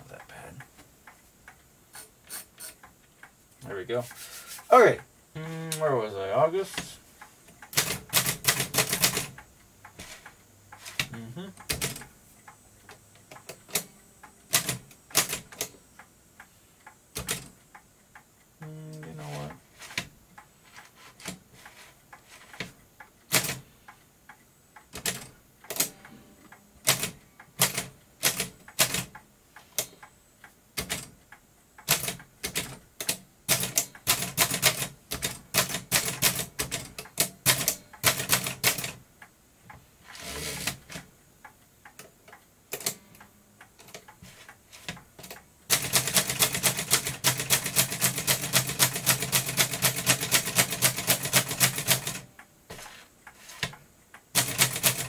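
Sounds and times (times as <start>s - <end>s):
typewriter keys clacking: 7.6s - 9.4s, 31.8s - 39.0s, 45.2s - 52.2s, 54.4s - 55.0s
typewriter carriage return: 7.7s - 9.4s, 31.9s - 39.0s, 40.1s - 41.0s, 44.7s - 52.2s, 54.4s - 55.0s.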